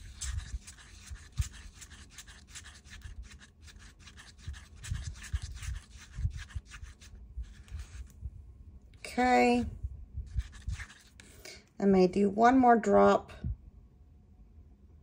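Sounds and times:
stir stick scraping cup: 0:00.0 - 0:08.1, 0:10.3 - 0:11.5.

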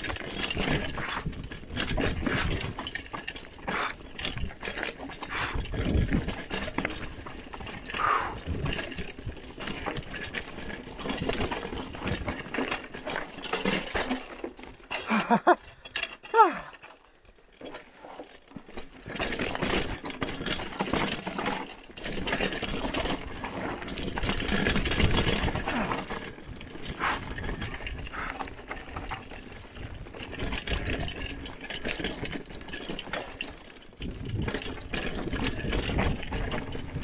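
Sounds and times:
mountain bike rattling on dirt trail: 0:00.0 - 0:37.0
short falling cries: 0:16.3 - 0:16.7.

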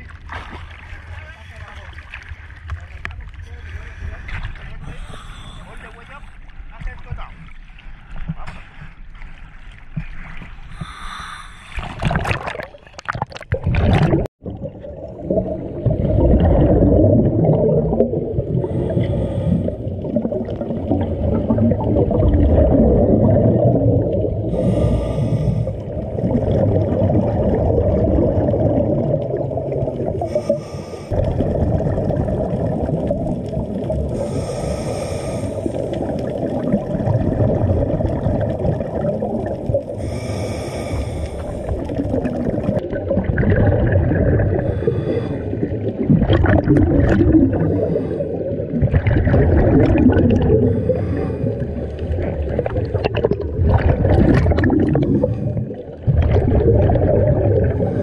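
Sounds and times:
exhaled bubbles rumbling underwater: 0:00.0 - 0:58.0
water sloshing: 0:00.0 - 0:58.0
regulator inhalation hiss: 0:04.8 - 0:06.3, 0:10.8 - 0:11.8, 0:24.6 - 0:25.8, 0:30.3 - 0:31.2, 0:34.2 - 0:35.9, 0:40.0 - 0:41.7.

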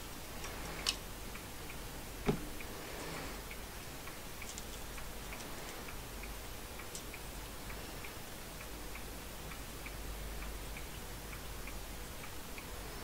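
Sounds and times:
steady low hum: 0:00.0 - 0:13.0
faint regular ticking: 0:00.1 - 0:13.0
dull knock: 0:02.3 - 0:02.5.

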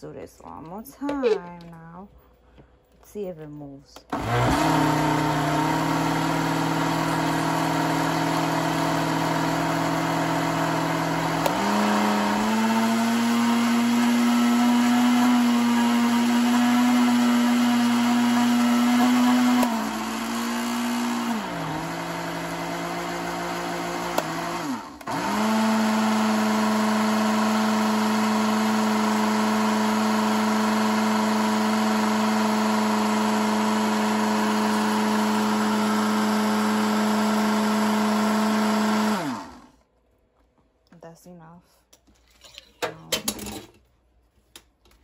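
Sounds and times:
blender motor running: 0:04.1 - 0:39.8.

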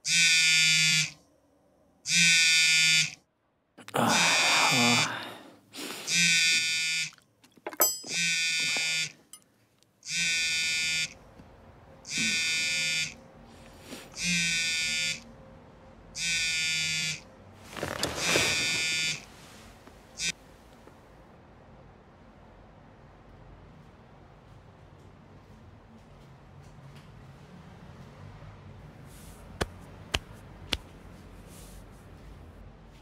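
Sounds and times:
electronic buzzer: 0:00.0 - 0:01.2, 0:02.1 - 0:03.2, 0:06.1 - 0:07.2, 0:08.1 - 0:09.2, 0:10.1 - 0:11.2, 0:12.1 - 0:13.2, 0:14.2 - 0:15.2, 0:16.2 - 0:17.3, 0:18.2 - 0:19.2.

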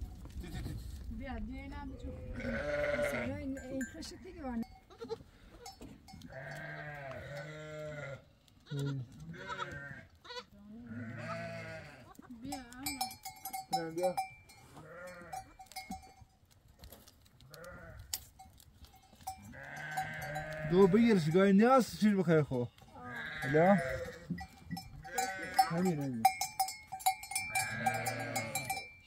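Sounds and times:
goats bleating: 0:02.2 - 0:03.5, 0:04.9 - 0:13.0, 0:14.8 - 0:15.9, 0:17.4 - 0:18.2, 0:18.9 - 0:26.7, 0:27.3 - 0:28.9.

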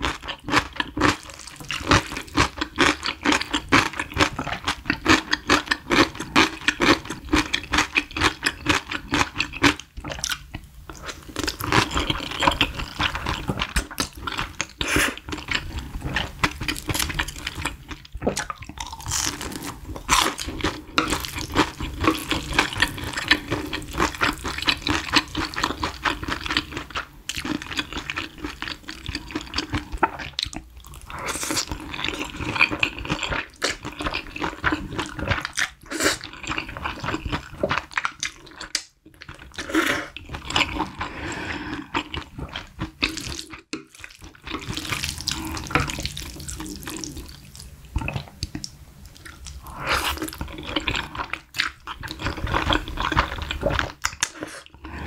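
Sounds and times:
wet slurping and chewing: 0:00.0 - 0:55.0.

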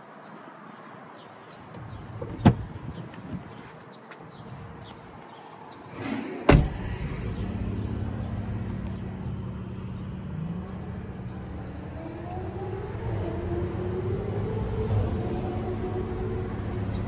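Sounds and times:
car door shutting: 0:02.2 - 0:02.9, 0:06.5 - 0:07.0
steady low rumble: 0:06.5 - 0:17.0.

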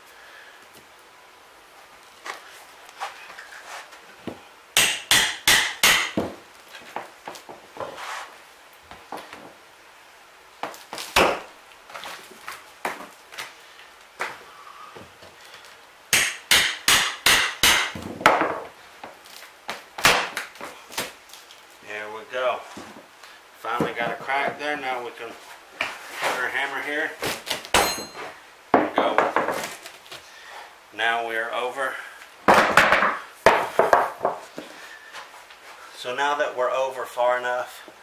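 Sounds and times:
hammer striking steel pry bar: 0:04.8 - 0:06.2, 0:16.1 - 0:18.0.

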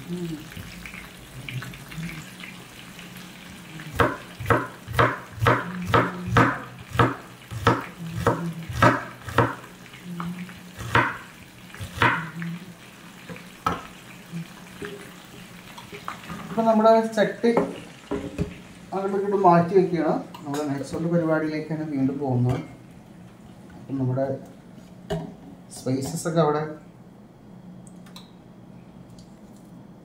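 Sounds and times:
knife chopping on wooden board: 0:04.0 - 0:09.6, 0:10.8 - 0:11.2, 0:12.0 - 0:12.2.

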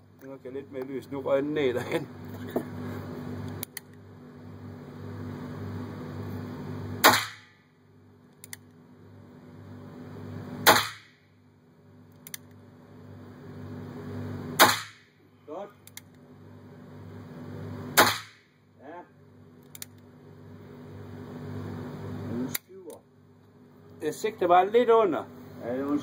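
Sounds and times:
revolver shots: 0:07.0 - 0:07.6, 0:10.6 - 0:11.2, 0:14.6 - 0:15.1, 0:18.0 - 0:18.5.

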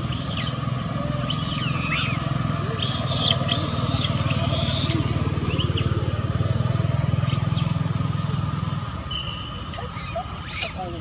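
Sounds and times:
engine rumbling: 0:00.0 - 0:11.0
insect drone: 0:00.0 - 0:11.0.

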